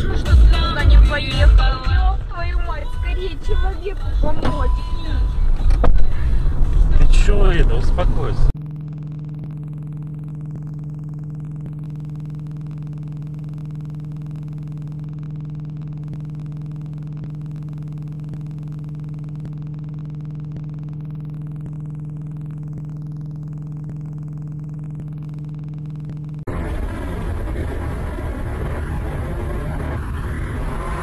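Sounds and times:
mains hum: 8.6s - 31.0s.

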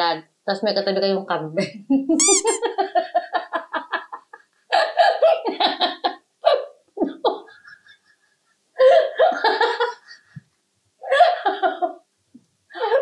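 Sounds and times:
woman laughing: 1.6s - 10.4s, 11.0s - 12.0s, 12.7s - 13.0s.

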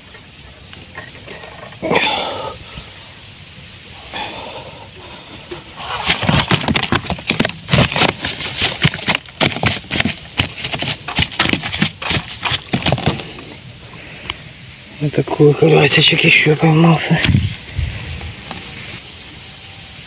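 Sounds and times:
fish flopping in plastic sack: 5.8s - 13.3s.

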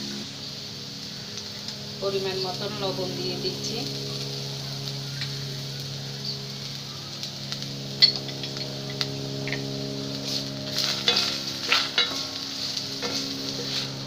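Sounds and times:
low hum: 0.0s - 14.0s
onions sizzling in oil: 0.0s - 14.0s
wooden spatula scraping pan: 10.2s - 14.0s.

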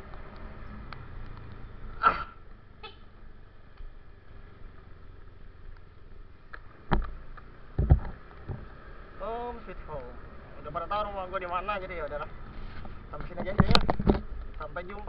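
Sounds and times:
motorcycle engine at low revs: 0.0s - 10.5s
heavy thumps: 7.7s - 8.7s.

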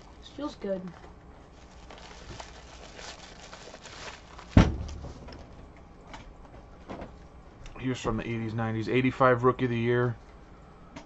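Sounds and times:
foil wrapper crinkling: 1.4s - 5.6s.

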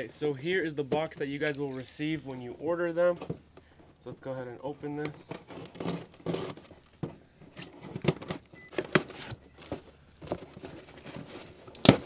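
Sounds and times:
cardboard box rustling: 5.3s - 12.0s.

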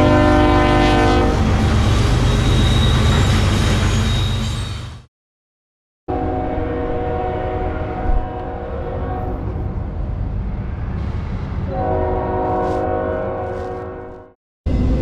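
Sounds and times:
locomotive air horn chord: 0.0s - 1.4s, 6.1s - 9.5s, 11.7s - 14.4s
rumble of engines and train: 0.0s - 5.1s, 6.1s - 15.0s.

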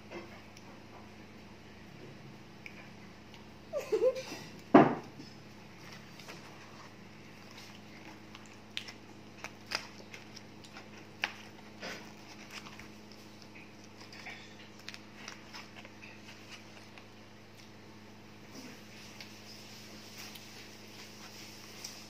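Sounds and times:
steady low hum: 0.0s - 22.0s
paper wrappers rustling: 5.8s - 17.2s.

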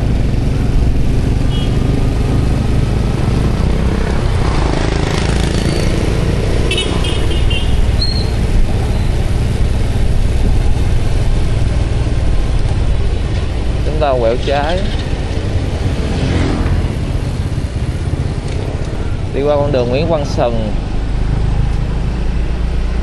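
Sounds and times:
motorbike engine running: 0.0s - 23.0s
other motorbikes in traffic: 0.0s - 23.0s.

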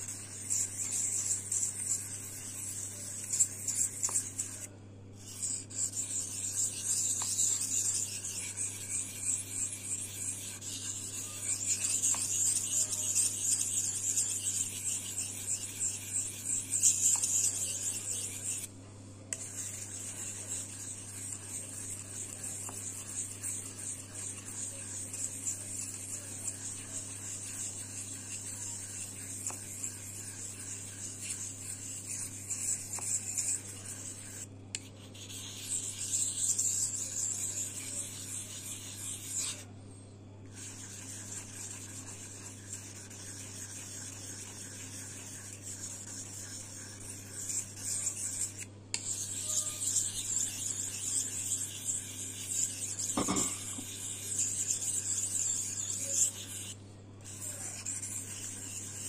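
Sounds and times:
knife rasping on whetstone: 0.0s - 18.7s, 19.4s - 39.7s, 40.5s - 59.0s
faint low hum: 0.0s - 59.0s.

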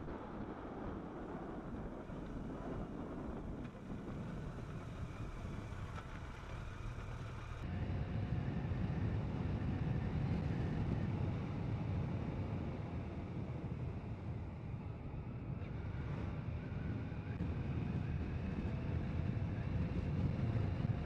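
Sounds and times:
wind rush on microphone: 0.0s - 21.0s
motorcycle engine running: 2.1s - 9.2s.

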